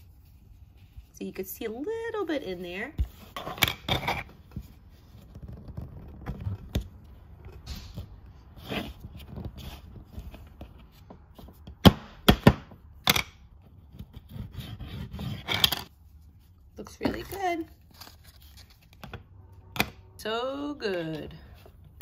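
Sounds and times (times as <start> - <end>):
sharp plastic knocks: 11.6 - 13.4.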